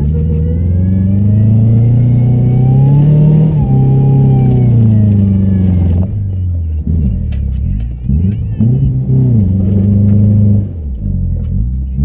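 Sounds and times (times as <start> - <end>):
car engine revving hard: 0.0 - 6.2, 8.1 - 11.3.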